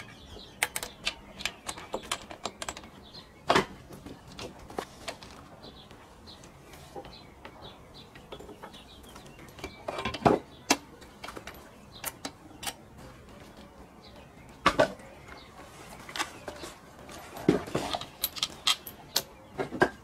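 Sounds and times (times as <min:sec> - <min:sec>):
clicks and knocks of handling metal: 0:00.0 - 0:05.5, 0:08.1 - 0:13.7, 0:16.1 - 0:20.0.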